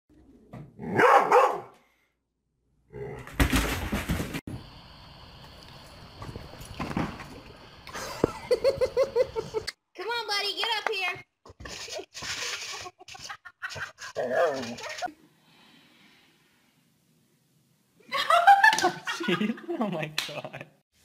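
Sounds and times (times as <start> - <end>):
dog barking: 0.8 - 1.8.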